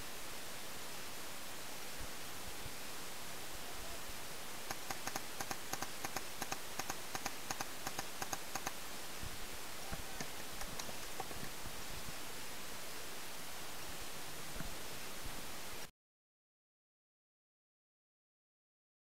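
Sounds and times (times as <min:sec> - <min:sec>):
steady hiss: 0:00.0 - 0:15.9.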